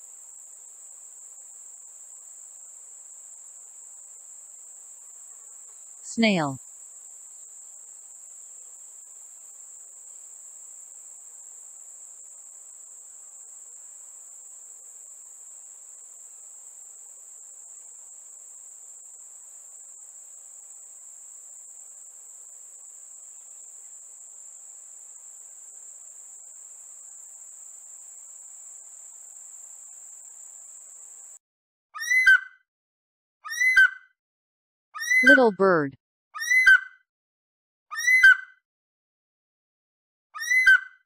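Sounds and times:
cricket trill: 0.0s - 31.4s.

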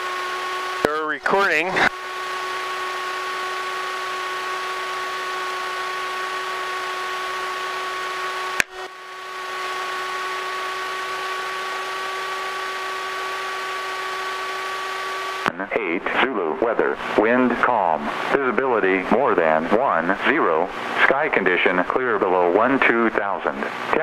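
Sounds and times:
constant electronic whine: 0.0s - 24.0s.

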